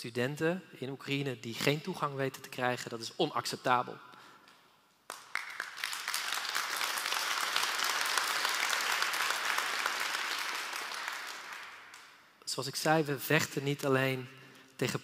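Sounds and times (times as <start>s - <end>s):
audience applauding: 5.1s - 12.2s.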